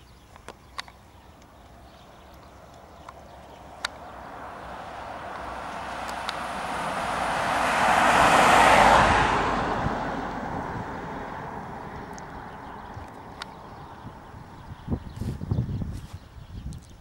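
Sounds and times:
car passing by: 2.0s - 14.1s.

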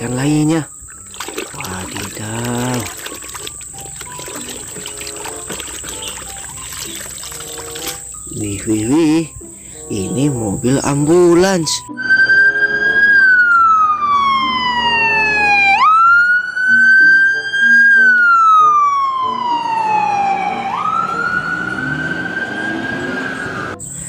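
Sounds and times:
ambulance siren wailing: 11.9s - 23.8s.

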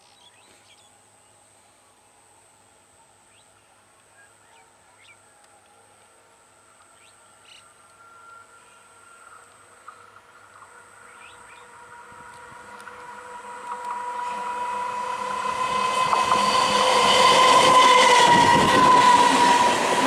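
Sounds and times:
electric train approaching: 6.4s - 20.0s.

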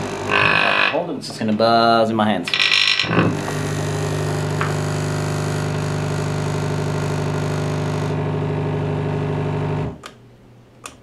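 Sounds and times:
electromagnetic vibrator buzzing: 0.0s - 1.0s, 2.5s - 10.0s.

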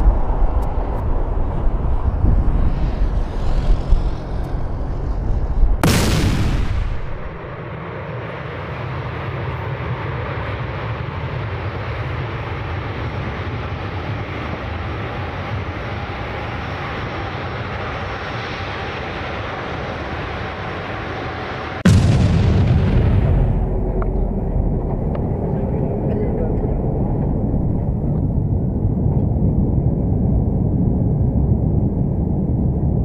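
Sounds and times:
distant jet engines roaring: 0.0s - 33.0s
loud bang: 5.8s - 7.6s, 21.8s - 24.7s.

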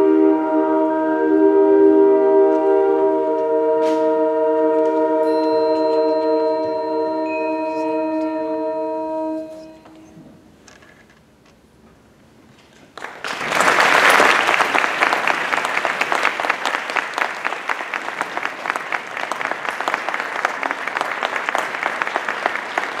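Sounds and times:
audience applauding: 12.9s - 23.0s.

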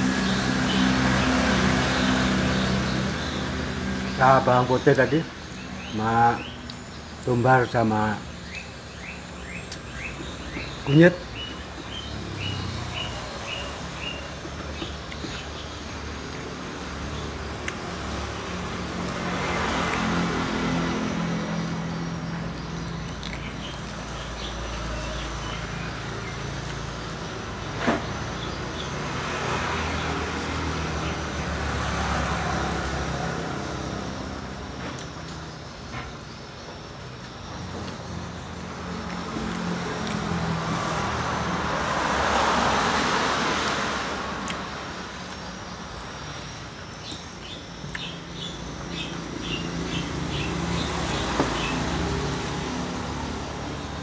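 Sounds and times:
motor vehicle passing: 0.0s - 6.6s, 9.0s - 36.0s, 37.5s - 45.4s, 46.4s - 54.0s
road traffic: 0.0s - 54.0s
small bird chirping: 8.1s - 17.9s, 45.1s - 54.0s.

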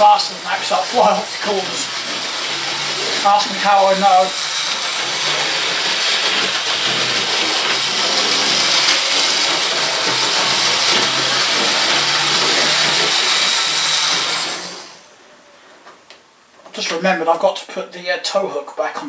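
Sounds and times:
model train motor whirring: 0.0s - 15.1s.

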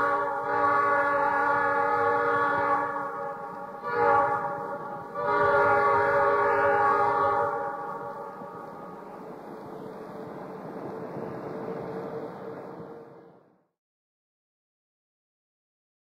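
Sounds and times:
train horn blasts: 0.0s - 8.9s.

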